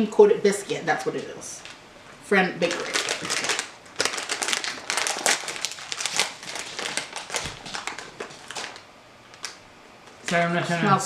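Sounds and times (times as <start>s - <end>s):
plastic wrapper crinkling: 2.6s - 9.6s.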